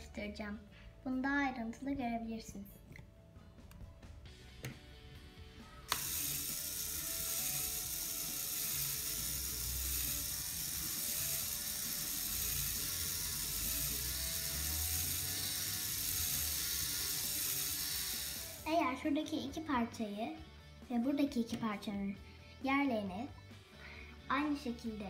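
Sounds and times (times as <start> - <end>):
plastic gears whirring: 5.9 - 18.7
small electric motor running: 5.9 - 18.7.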